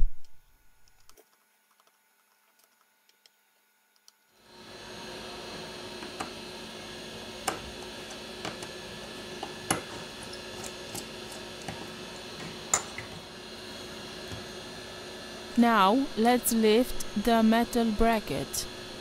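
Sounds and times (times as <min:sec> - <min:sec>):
steady hum: 0:04.0 - 0:19.0.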